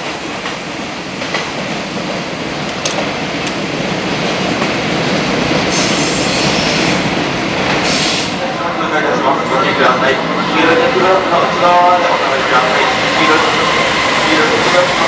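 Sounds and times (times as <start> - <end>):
commuter train approaching: 0.0 - 15.0
freight train rolling: 0.0 - 15.0
hissing rush: 3.8 - 15.0.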